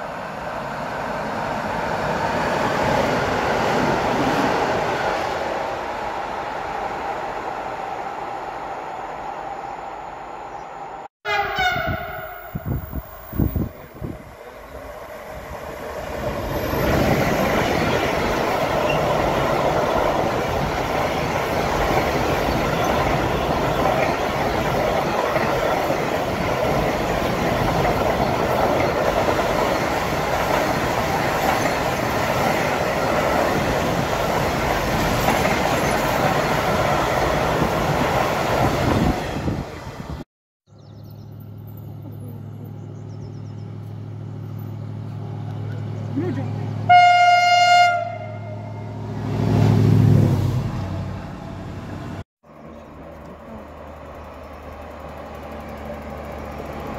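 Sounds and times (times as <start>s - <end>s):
freight train wagons rolling on rails: 13.4s - 40.0s, 52.5s - 56.9s.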